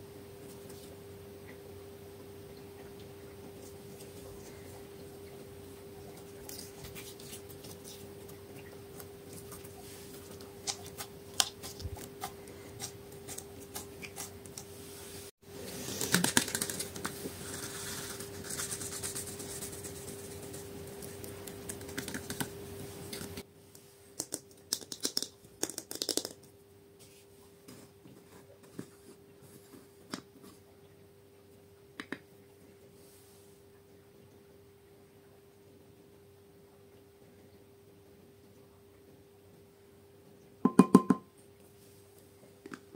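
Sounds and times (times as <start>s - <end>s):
faint steady hum: 0.0s - 42.9s
plastic containers tapping: 40.7s - 41.3s.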